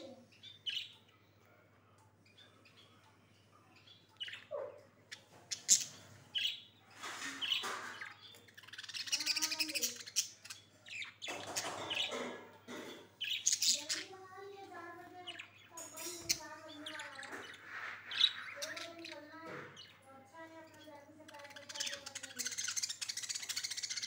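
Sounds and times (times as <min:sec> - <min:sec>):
budgerigars chirping: 0:03.8 - 0:14.2, 0:15.2 - 0:20.0, 0:20.8 - 0:24.0.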